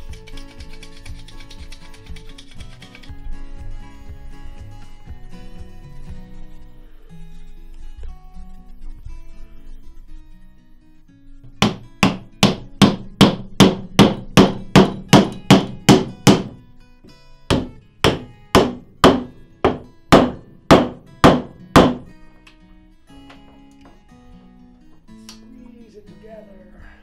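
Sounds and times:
faint guitar music: 0.0s - 27.0s
sharp evenly spaced knocks: 11.5s - 22.6s.

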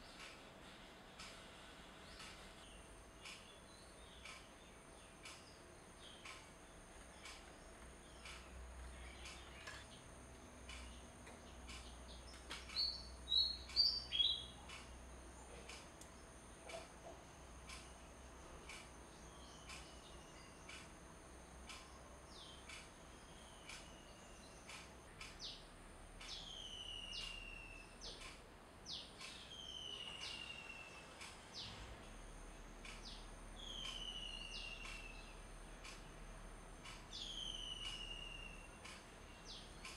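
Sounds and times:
faint high hum: 0.0s - 39.9s
sharp ticks: 2.1s - 25.6s, 28.0s - 29.4s, 31.0s - 31.8s, 32.6s - 39.9s
bird whistling call: 26.3s - 27.9s, 29.5s - 30.9s, 33.6s - 35.3s, 37.2s - 38.7s.

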